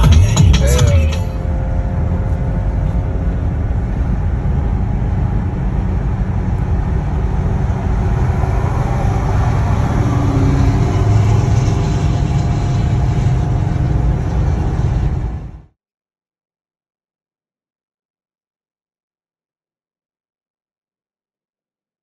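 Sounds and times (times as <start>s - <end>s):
car engine noise: 0.0s - 15.7s
tyres rumbling on road: 0.0s - 15.7s.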